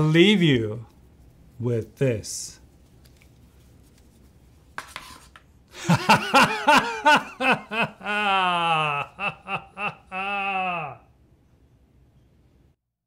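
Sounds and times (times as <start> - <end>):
man laughing loudly: 5.8 - 11.0.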